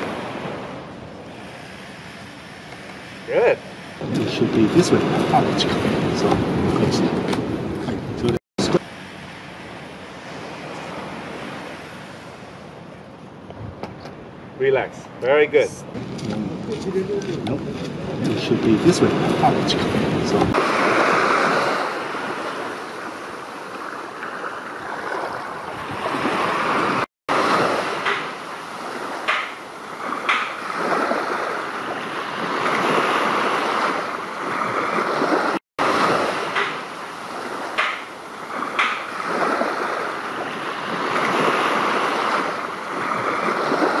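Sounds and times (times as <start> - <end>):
small sea waves washing: 0.0 - 13.2, 15.9 - 44.0.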